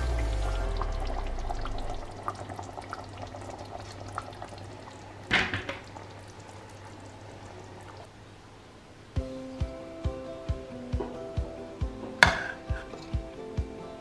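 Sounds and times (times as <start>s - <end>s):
stew bubbles popping: 0.6s - 5.0s
pot clunking on counter: 5.3s - 5.9s, 12.2s - 12.9s.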